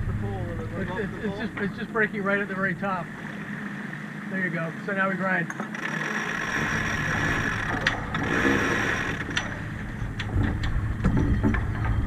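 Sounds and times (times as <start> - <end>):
wind and water rushing: 0.0 - 12.0
winch ratchet clicks: 5.5 - 10.8.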